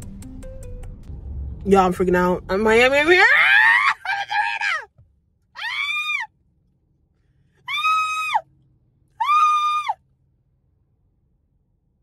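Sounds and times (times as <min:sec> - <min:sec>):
woman squealing excitedly: 0:03.2 - 0:04.9, 0:05.6 - 0:06.3, 0:07.7 - 0:08.4, 0:09.2 - 0:10.0.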